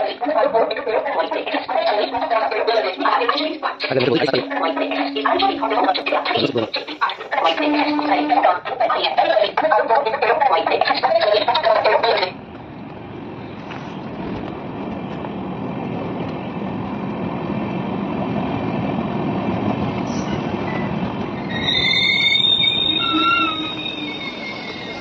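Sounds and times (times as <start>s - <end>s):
train coaches rumbling: 0.0s - 25.0s
wheels squealing: 1.3s - 9.4s, 20.0s - 25.0s.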